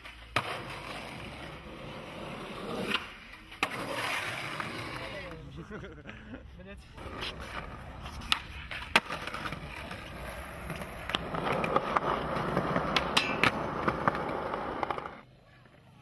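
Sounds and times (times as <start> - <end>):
skateboard wheels rolling on concrete: 0.0 - 16.0
skateboard clacks: 7.0 - 15.9.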